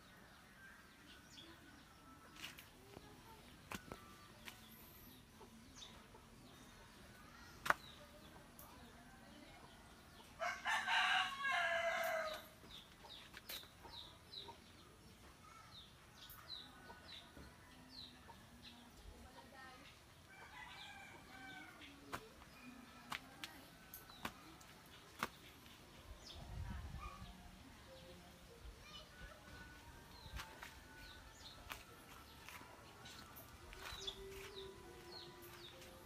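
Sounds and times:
rooster crowing: 0:10.4 - 0:12.4.

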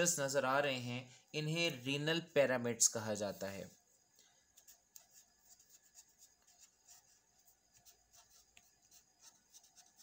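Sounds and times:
pen scratching on paper: 0:03.3 - 0:10.0.

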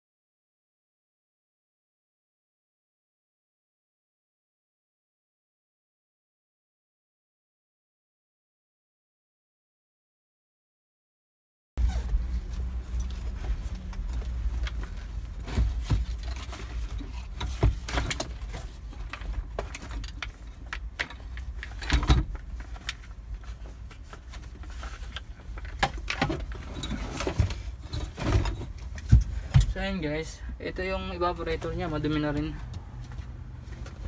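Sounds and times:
plastic and metal knocks and clatters: 0:14.6 - 0:29.8.

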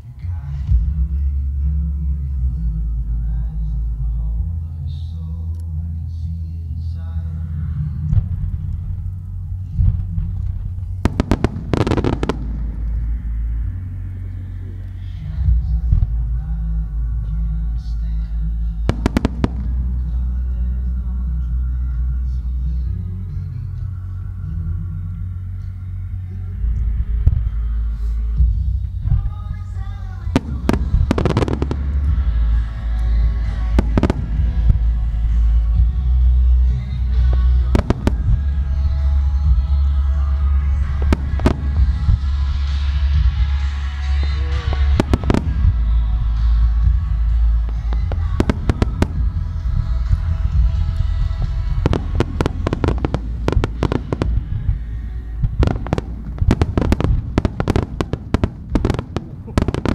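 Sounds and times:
deep rumble: 0:00.0 - 0:59.9
music: 0:00.0 - 0:59.9
crackling firework reports: 0:08.1 - 0:16.3, 0:26.7 - 0:59.9.

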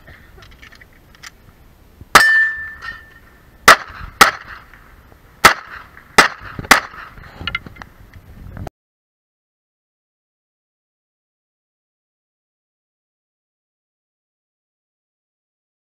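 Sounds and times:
pistol shots: 0:03.6 - 0:04.8, 0:05.4 - 0:07.1.

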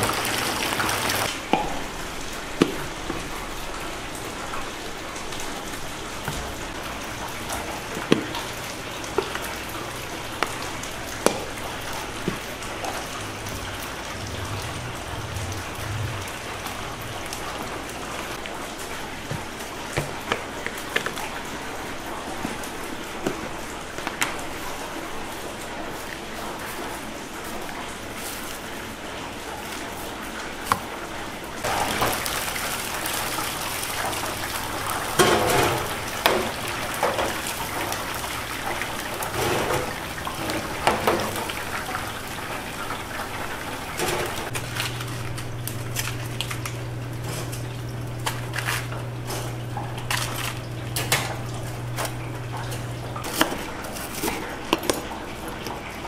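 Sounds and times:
hot oil sizzling: 0:00.0 - 0:19.2, 0:31.6 - 0:47.2
steady low hum: 0:12.5 - 0:18.4.

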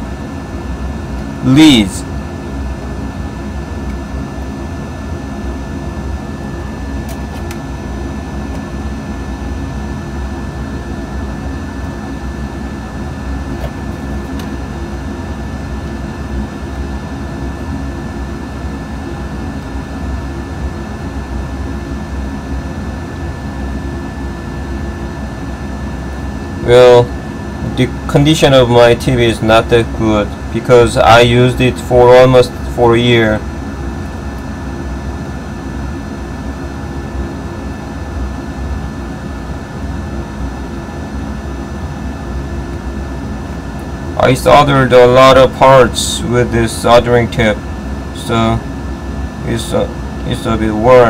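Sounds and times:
fan hum and hiss: 0:00.0 - 0:51.0
high-pitched whine: 0:00.0 - 0:51.0.

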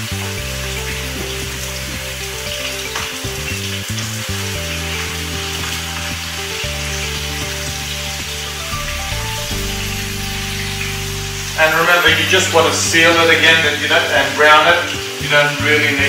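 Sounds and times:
background music: 0:00.0 - 0:16.0
meat sizzling in hot oil: 0:00.0 - 0:16.0.

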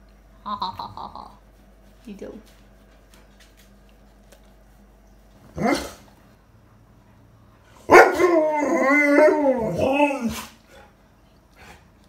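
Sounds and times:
dog howling: 0:05.6 - 0:06.0, 0:07.9 - 0:10.6
dog yelping: 0:05.6 - 0:06.0.

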